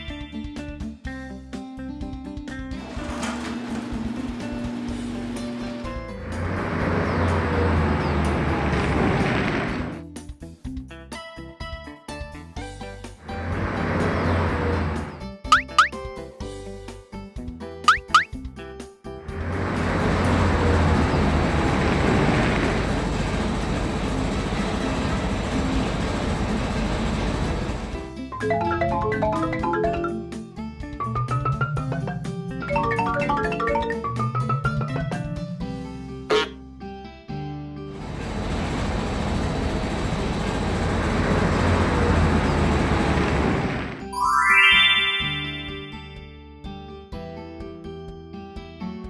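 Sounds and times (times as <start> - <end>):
cartoon machinery rumble and rattle: 2.8 - 10.0, 13.2 - 15.3, 19.3 - 28.1, 38.0 - 44.1
bright rising chime: 44.1 - 46.2.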